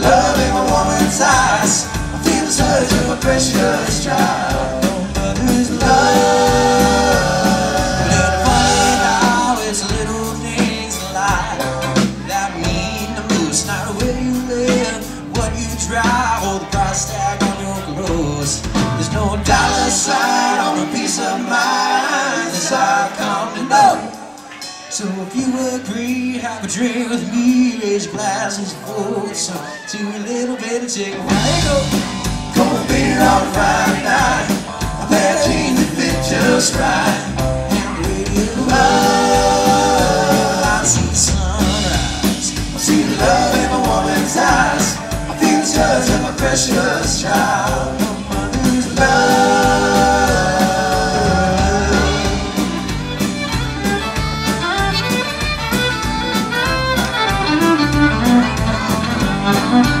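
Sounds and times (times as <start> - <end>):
bass guitar: 0.0 - 24.8, 31.1 - 60.0
drums: 0.0 - 29.9, 30.5 - 60.0
person singing: 0.0 - 52.9
electric guitar: 31.1 - 60.0
fiddle: 51.8 - 60.0.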